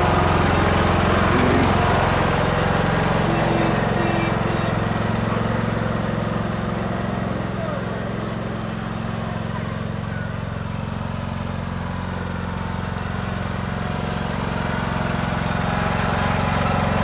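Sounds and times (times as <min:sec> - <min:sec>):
riding lawn mower engine: 0:00.0 - 0:17.0.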